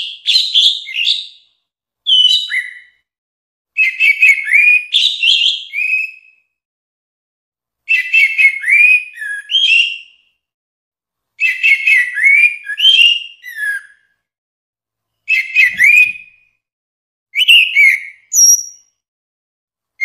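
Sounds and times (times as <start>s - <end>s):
thrush singing whistled notes: 2.1s - 3.1s, 3.8s - 6.5s, 7.9s - 10.3s, 11.4s - 14.2s, 15.3s - 16.6s, 17.3s - 19.0s.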